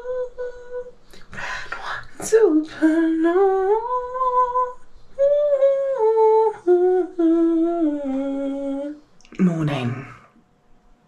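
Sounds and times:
woman humming: 0.0 - 0.9, 2.7 - 9.0.

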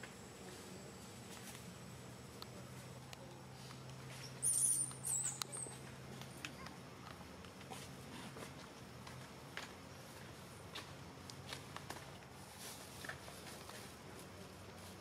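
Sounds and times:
baby monkey squeaking: 4.4 - 5.8.

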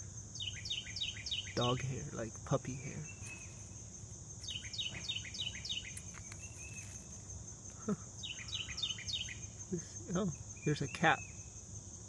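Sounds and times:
insect drone: 0.0 - 12.0
songbird whistling: 0.4 - 1.9, 4.4 - 7.0, 8.2 - 9.5.

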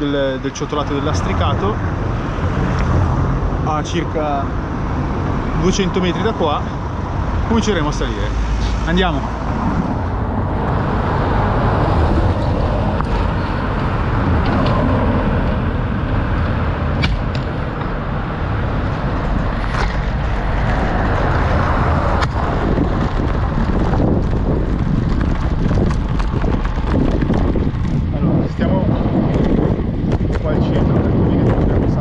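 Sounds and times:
wind on microphone: 0.0 - 32.0
sharp clicks and rattles: 18.8 - 32.0
bike rolling over cobbles: 22.2 - 28.5.

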